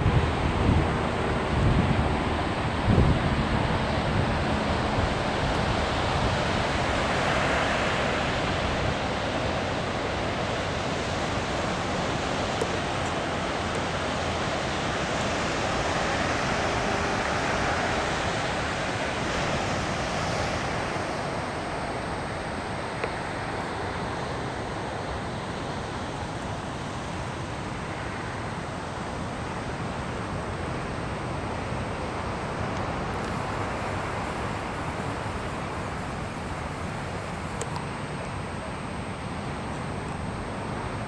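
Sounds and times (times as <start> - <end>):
ocean surf breaking on a beach: 0.0 - 41.0
wind rumbling on the microphone: 0.0 - 41.0.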